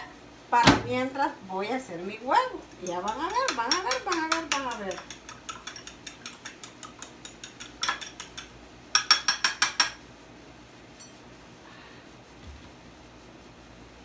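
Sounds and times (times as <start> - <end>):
fork beating eggs in glass bowl: 2.5 - 10.0.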